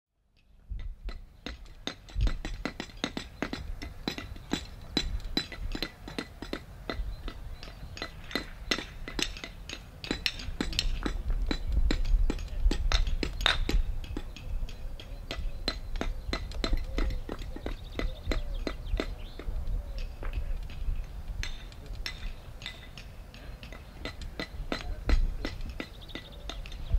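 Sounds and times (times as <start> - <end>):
hammer tapping bricks: 0.8 - 26.9.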